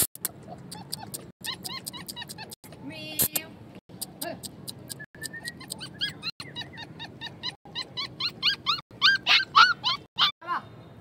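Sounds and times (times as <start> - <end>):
puppy whining and yelping: 0.0 - 2.6, 4.8 - 10.4
sharp clicks: 0.0 - 2.6, 3.2 - 5.8.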